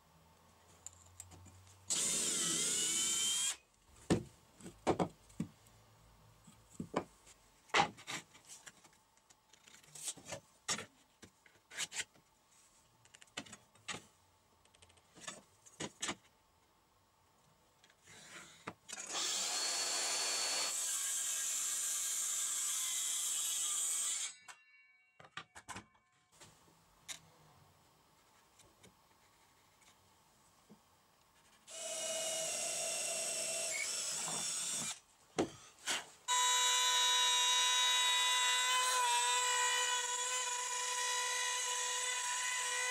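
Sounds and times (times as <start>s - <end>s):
power tool running: 1.9s - 3.6s, 18.9s - 24.3s.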